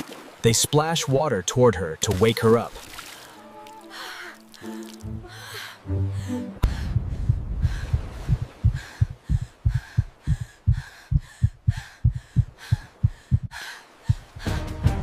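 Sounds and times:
deep heartbeat thumps: 6.6 - 14.7.

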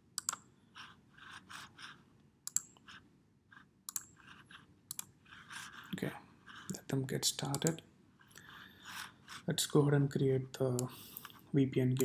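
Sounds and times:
computer mouse clicks: 0.2 - 0.5, 2.4 - 2.9, 3.9 - 4.2, 4.9 - 5.1.

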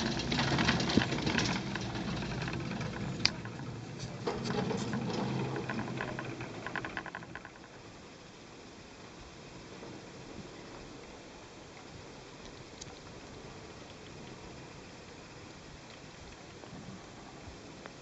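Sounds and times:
chairlift clicking and rattling: 0.0 - 7.7
quiet hiss: 0.0 - 18.0.

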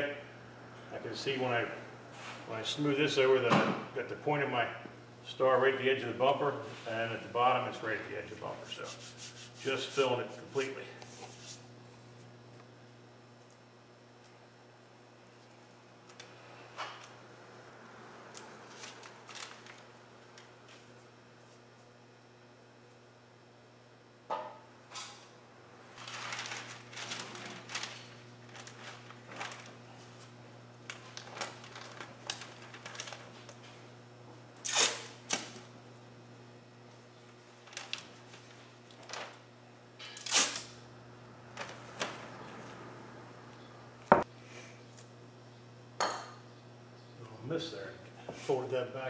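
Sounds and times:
paper rustling and crinkling: 18.6 - 20.0, 25.9 - 30.3, 30.9 - 33.7, 37.4 - 39.4.

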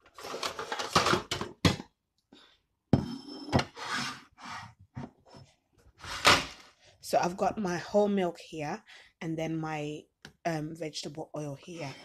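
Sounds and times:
rustling and scraping: 0.0 - 1.4, 3.4 - 6.8.

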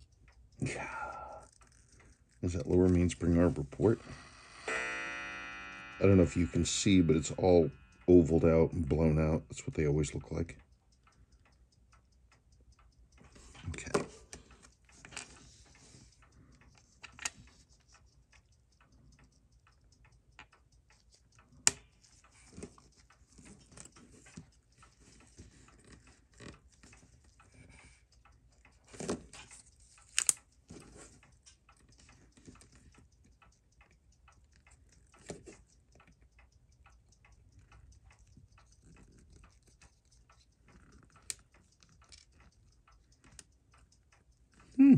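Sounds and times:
fast watch ticking: 0.0 - 44.9
tweezers clicking on metal: 30.0 - 30.6.

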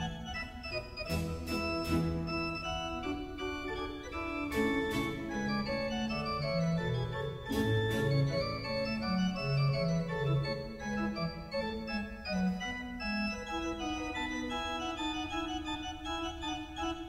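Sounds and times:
organ playing slow chords: 0.0 - 17.0.

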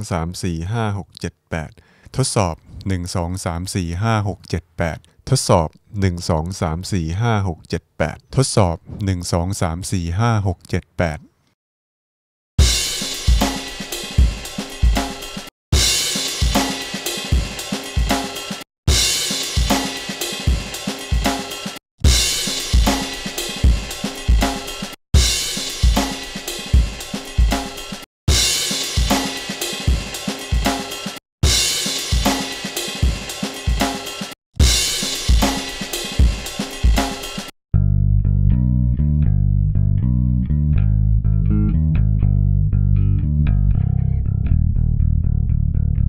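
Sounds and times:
drum kit loop: 12.6 - 37.6.

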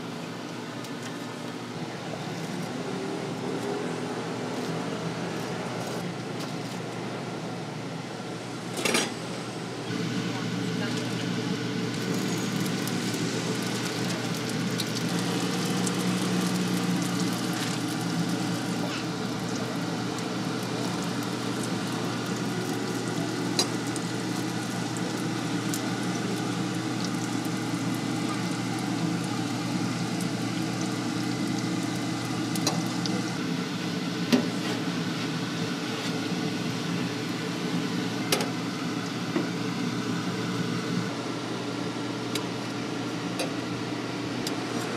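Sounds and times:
oil sizzling in fryer: 9.8 - 41.2.

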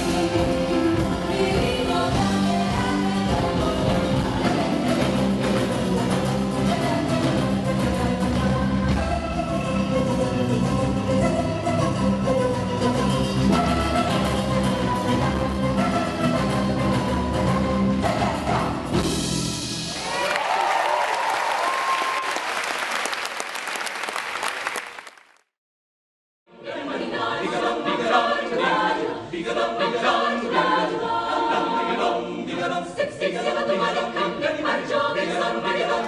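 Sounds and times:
group of singers singing: 0.0 - 18.8, 26.5 - 36.0
backing music: 0.0 - 20.2
audience applause and cheering: 19.8 - 25.5.

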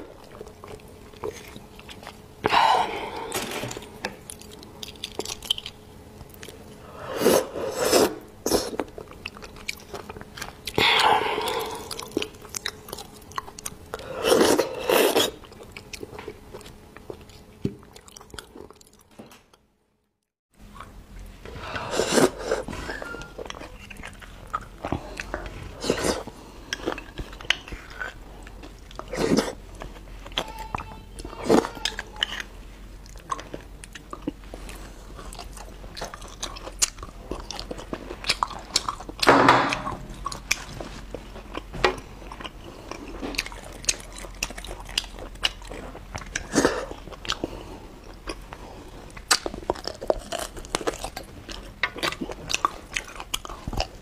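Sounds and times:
wet chewing and lip-smacking: 4.0 - 6.7, 8.7 - 19.1, 31.7 - 54.0.

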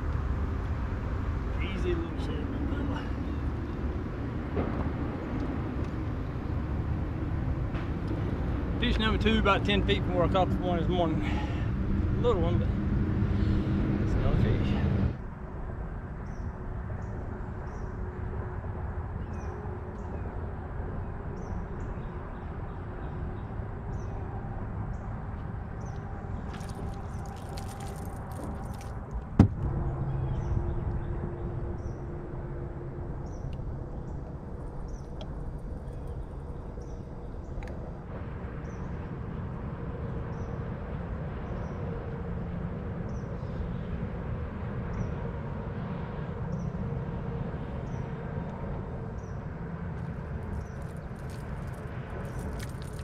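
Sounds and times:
low wind: 0.0 - 53.0
water noise: 26.2 - 29.6, 50.4 - 53.0.

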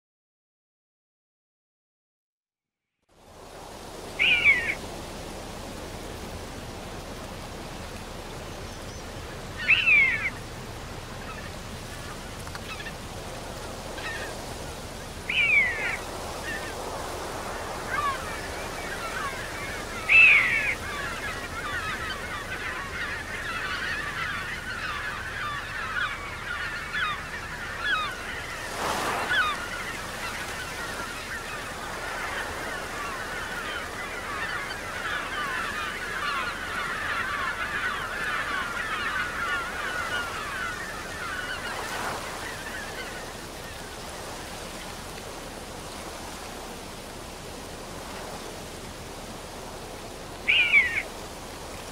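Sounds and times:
geese honking: 17.7 - 43.3.

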